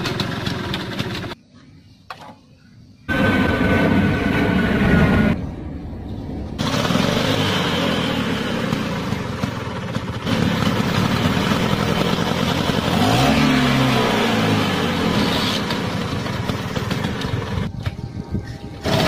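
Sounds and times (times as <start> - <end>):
scooter engine revving: 0.0 - 1.4, 3.1 - 5.4, 6.6 - 17.7, 18.8 - 19.0.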